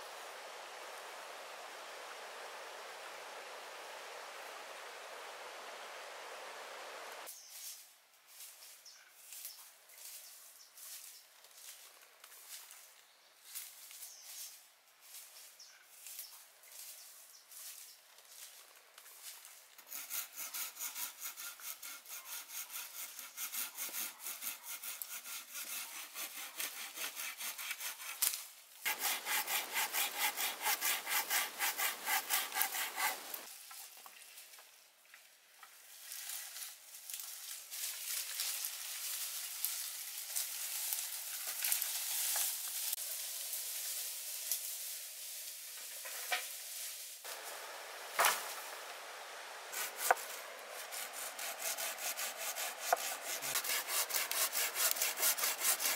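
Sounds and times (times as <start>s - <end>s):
hand saw cutting wood: 19.8s - 33.5s, 47.3s - 55.9s.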